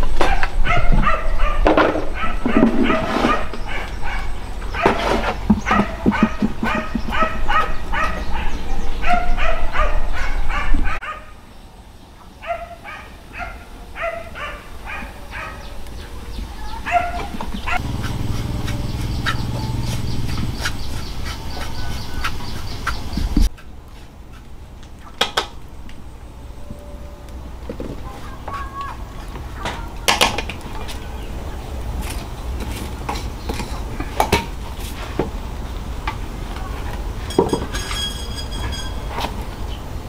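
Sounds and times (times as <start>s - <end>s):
animal yipping calls: 5.6s - 11.3s, 16.6s - 23.2s
steady low hum: 17.7s - 23.5s.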